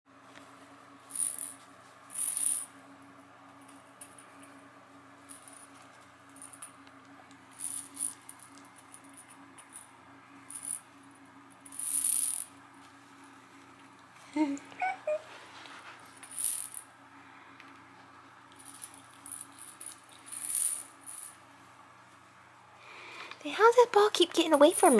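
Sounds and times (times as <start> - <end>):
plastic rattle ball rattling: 1.1 - 2.7, 7.6 - 9.8, 11.7 - 12.5.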